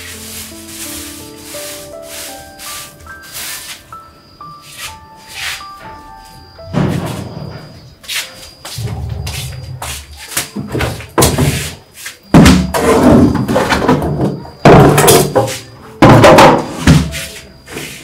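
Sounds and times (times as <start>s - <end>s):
plastic basins clattering on tiles: 10.0s - 18.0s.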